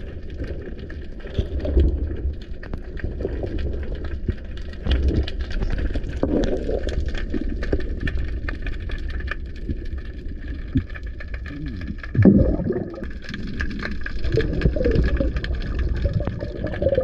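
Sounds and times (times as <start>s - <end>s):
sharp clicks and crackles: 0.0s - 17.0s
underwater rumble of moving water: 0.0s - 17.0s
swishing water: 9.4s - 17.0s.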